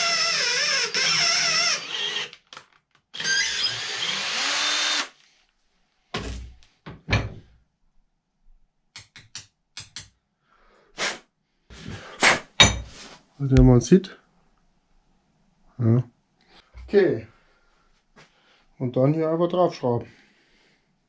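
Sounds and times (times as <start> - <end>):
cordless drill drilling into brass: 0.0 - 5.2.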